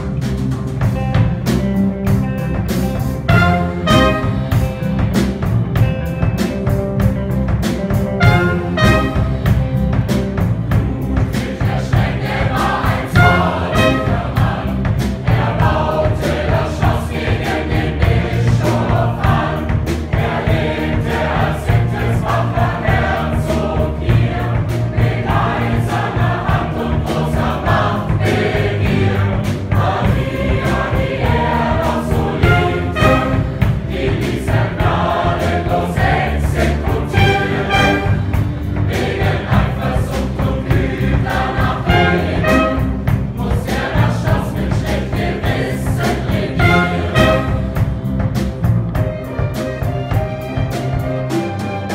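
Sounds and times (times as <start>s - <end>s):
big band and orchestra: 0.0s - 51.9s
youth choir singing: 10.7s - 47.9s.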